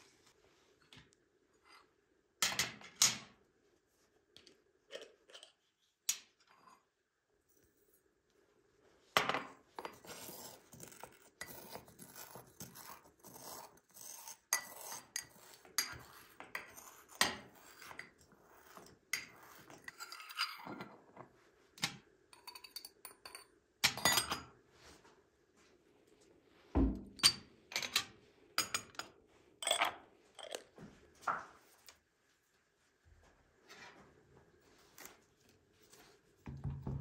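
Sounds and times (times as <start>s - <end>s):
metal spoon scraping mortar: 9.8s - 20.7s.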